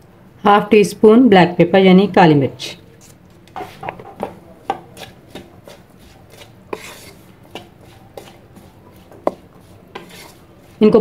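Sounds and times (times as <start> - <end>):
wooden spatula scraping a pan: 3.5 - 11.0.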